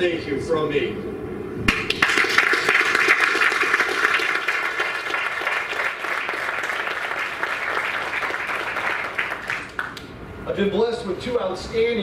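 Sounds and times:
audience applauding: 0:01.7 - 0:10.1.

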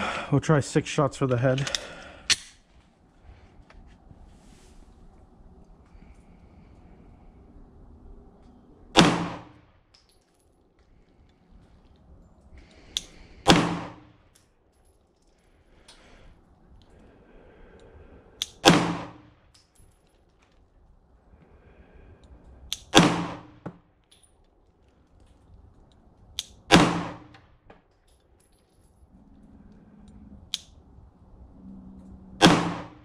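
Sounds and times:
pistol shots with ringing echo: 0:08.9 - 0:09.6, 0:13.4 - 0:14.1, 0:18.5 - 0:19.4, 0:22.8 - 0:23.7, 0:26.7 - 0:27.4, 0:32.4 - 0:33.0.

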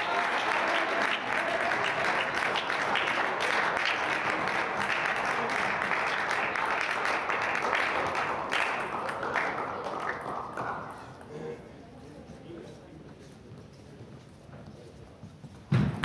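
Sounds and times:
spectators clapping: 0:00.0 - 0:11.3.

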